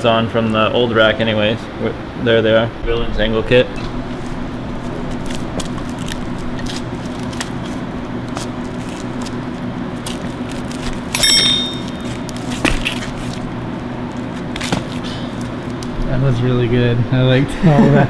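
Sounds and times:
ringing metal clink: 11.2s - 12.1s.

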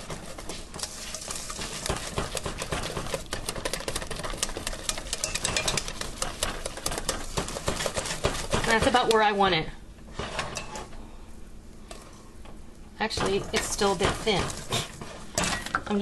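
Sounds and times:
wire whisk clicking against metal pan: 3.3s - 7.2s.

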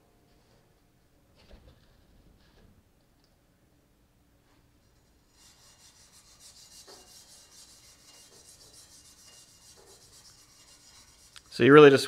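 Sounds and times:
scouring pad scratching metal: 5.2s - 11.9s.

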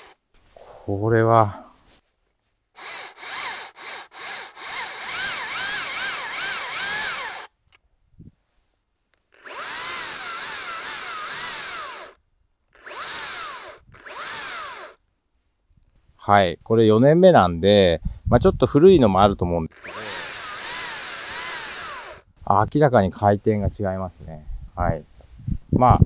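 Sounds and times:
chainsaw motor whining: 0.0s - 0.2s, 2.8s - 7.5s, 9.3s - 15.0s, 19.7s - 22.2s.

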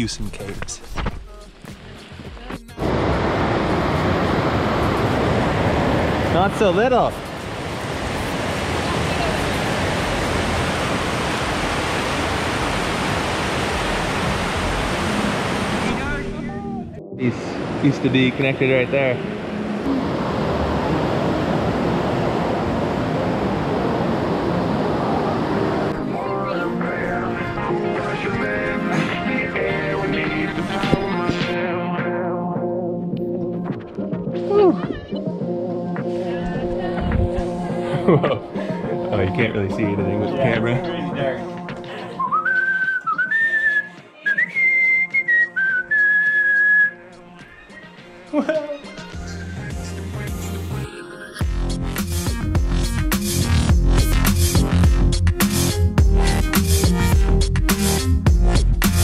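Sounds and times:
creek water rushing over rocks: 2.9s - 16.0s
background music: 14.6s - 20.2s, 24.0s - 59.0s
whistled melody: 42.1s - 47.1s.

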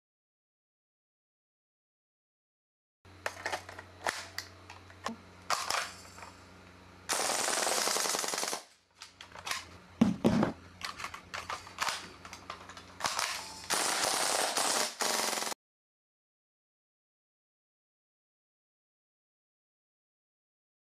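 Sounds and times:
airsoft gun full-auto burst: 7.1s - 8.8s, 13.0s - 15.6s.

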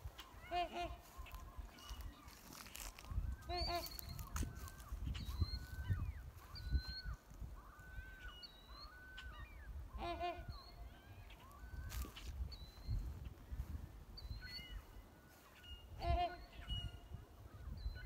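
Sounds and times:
wind rumbling on microphone: 0.0s - 18.0s
waterfowl calling: 0.1s - 12.3s.

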